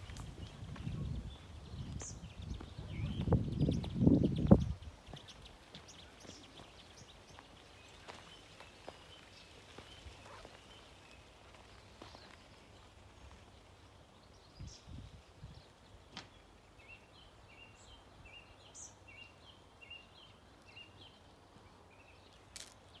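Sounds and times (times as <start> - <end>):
low rumbles on microphone: 0.0 - 5.0.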